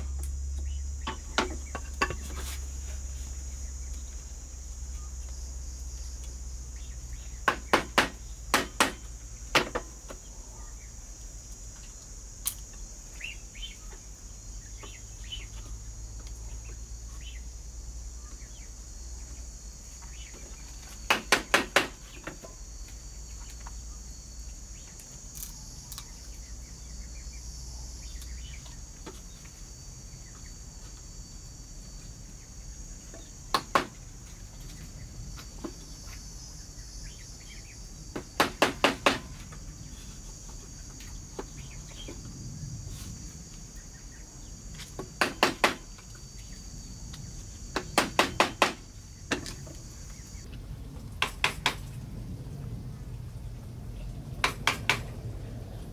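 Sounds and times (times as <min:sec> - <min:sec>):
insects chorus: 0:00.0 - 0:55.9
tool striking bamboo: 0:01.0 - 0:02.5, 0:07.4 - 0:10.0, 0:21.0 - 0:22.6, 0:33.5 - 0:34.0, 0:38.1 - 0:39.4, 0:45.0 - 0:45.9, 0:47.7 - 0:49.7, 0:51.2 - 0:51.8, 0:54.4 - 0:55.0.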